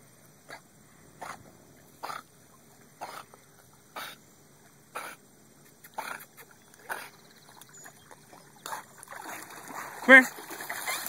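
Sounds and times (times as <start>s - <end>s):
dog puffing breath while swimming: 0.5s - 2.2s, 3.0s - 4.2s, 5.0s - 7.2s
water splashing and sloshing: 6.0s - 11.0s.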